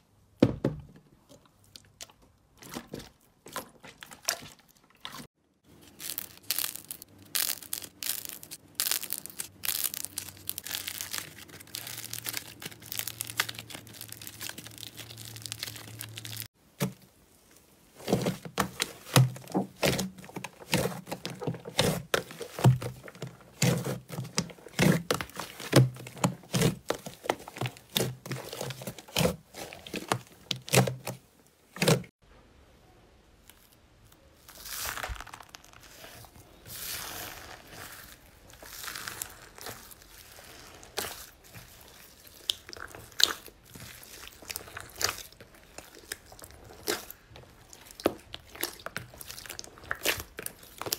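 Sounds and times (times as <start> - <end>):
slime crackling and popping: 5.8 - 16.6, 34.4 - 50.9.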